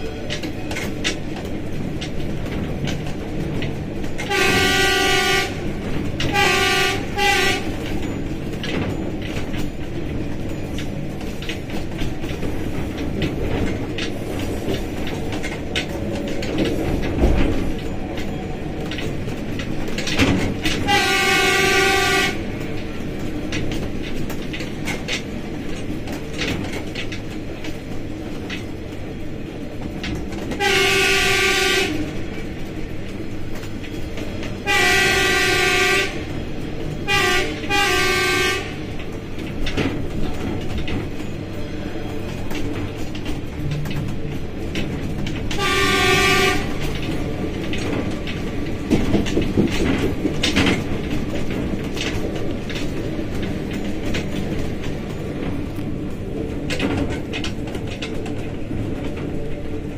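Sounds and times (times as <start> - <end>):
diesel locomotive engine: 0.0 - 59.9
wheels on rails: 0.0 - 59.9
locomotive horn blasts: 4.2 - 7.8, 20.8 - 22.5, 30.6 - 32.1, 34.6 - 36.3, 37.0 - 38.9, 45.5 - 46.8.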